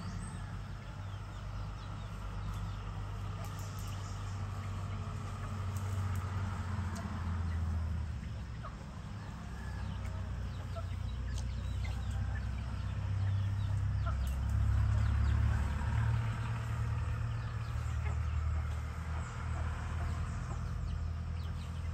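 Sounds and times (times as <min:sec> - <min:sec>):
distant rooster crowing: 0:09.0 - 0:14.2.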